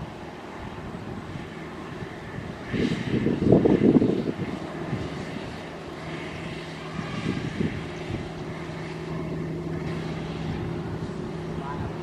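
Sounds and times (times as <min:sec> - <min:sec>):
combine harvester engine droning: 0:00.0 - 0:12.0.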